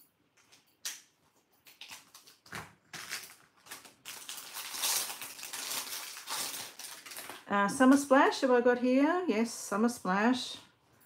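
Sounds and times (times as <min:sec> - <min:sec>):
plastic packaging crinkling: 0:01.7 - 0:08.0.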